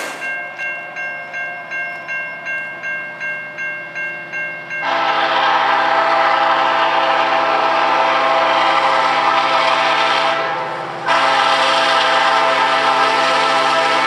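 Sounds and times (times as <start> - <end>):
locomotive air horn blasts: 4.8 - 14.0.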